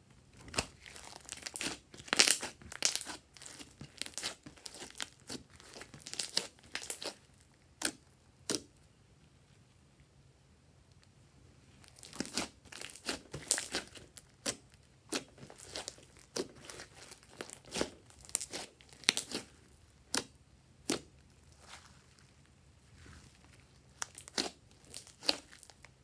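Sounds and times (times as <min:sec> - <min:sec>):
slime popping and crackling: 0:00.4 - 0:08.7, 0:11.8 - 0:21.8, 0:23.5 - 0:26.0.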